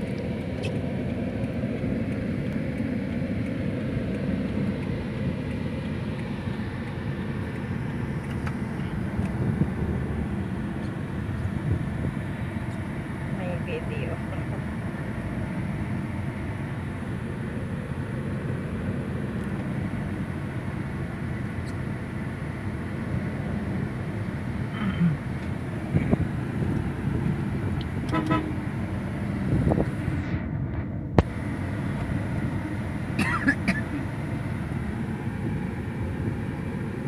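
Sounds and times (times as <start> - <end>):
vehicle rumble inside car: 0.0 - 37.0
car horn toot: 28.1 - 28.6.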